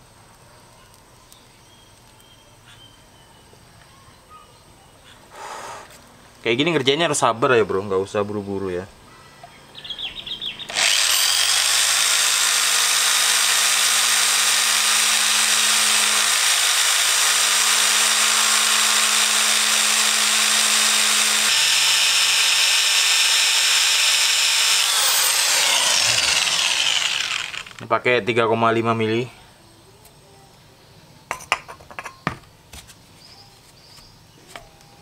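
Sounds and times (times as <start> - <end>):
electric drill boring into bolt: 10.7 - 27.9.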